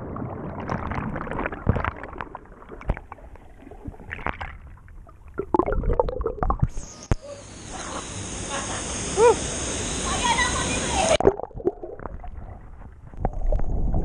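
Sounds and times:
underwater churning and bubbling: 0:00.0 - 0:07.0, 0:11.2 - 0:14.0.

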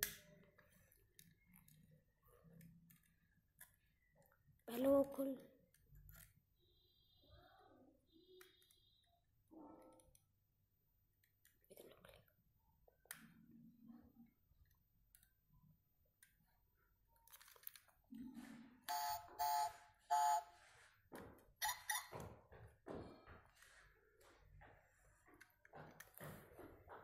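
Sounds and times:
short electronic beeps: 0:18.9 - 0:20.6.

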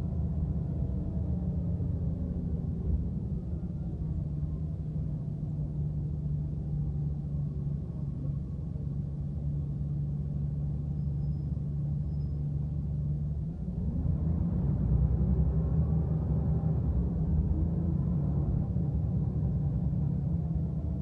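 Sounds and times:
bus engine hum: 0:00.0 - 0:21.0
road noise: 0:00.0 - 0:21.0.

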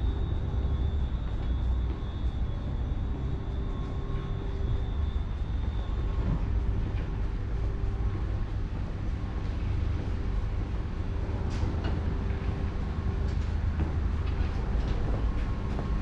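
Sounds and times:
faint high whine: 0:00.0 - 0:16.0
low rumble of vehicles: 0:00.0 - 0:16.0.

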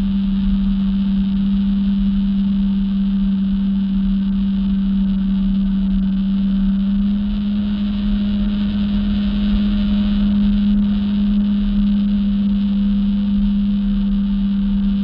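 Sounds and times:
jet ski engine droning: 0:00.0 - 0:15.0.

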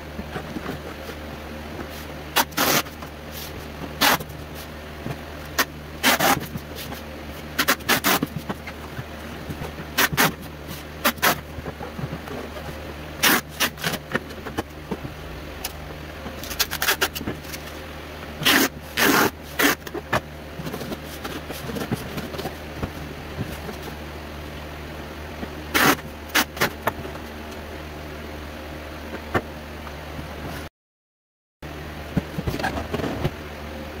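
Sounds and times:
steady low hum: 0:00.0 - 0:30.7
packing tape ripping: 0:02.4 - 0:03.0, 0:05.6 - 0:06.5, 0:07.6 - 0:08.3, 0:13.2 - 0:14.0, 0:16.4 - 0:17.6.

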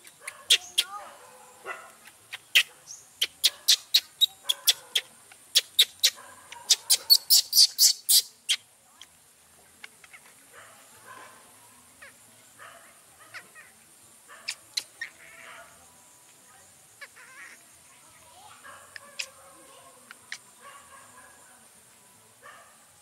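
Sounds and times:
baby monkey shrill squeals: 0:00.4 - 0:01.0, 0:02.3 - 0:08.6, 0:14.5 - 0:15.5, 0:17.0 - 0:17.6.

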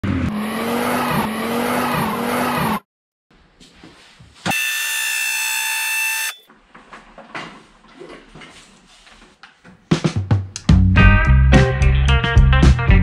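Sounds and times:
loud buzzer tone: 0:04.5 - 0:06.5.

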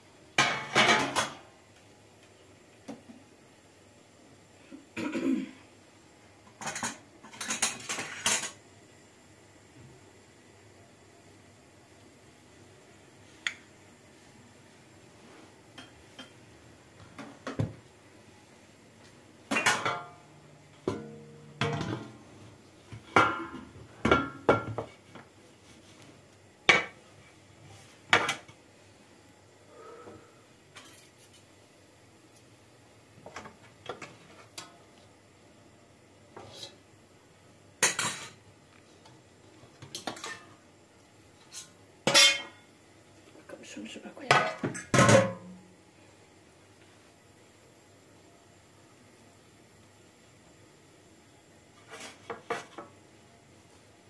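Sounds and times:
metal pan and tray clattering: 0:00.4 - 0:01.4, 0:06.6 - 0:08.6, 0:19.5 - 0:20.2, 0:42.1 - 0:42.6.

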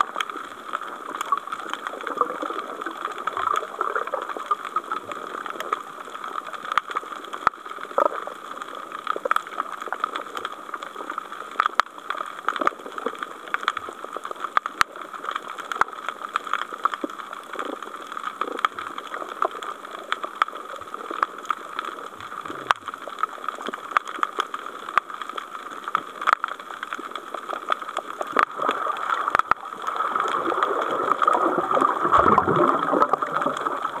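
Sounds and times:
sharp clicks and crackles: 0:00.0 - 0:34.0
water rushing: 0:18.6 - 0:34.0.

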